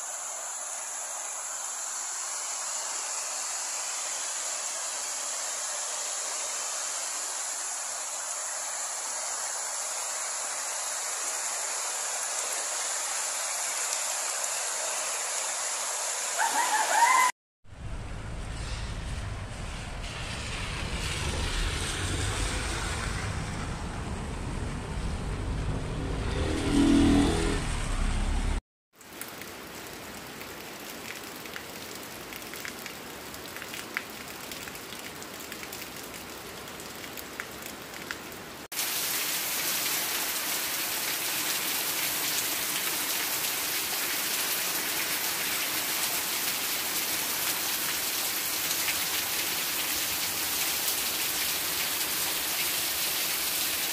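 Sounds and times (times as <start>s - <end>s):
heavy rain on pavement: 3.0s - 16.6s, 29.0s - 53.9s
cars driving on wet street: 17.7s - 28.6s.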